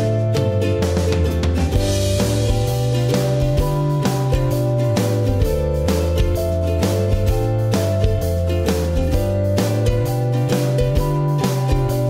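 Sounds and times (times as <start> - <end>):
plucked guitar over a beat: 0.0 - 12.0.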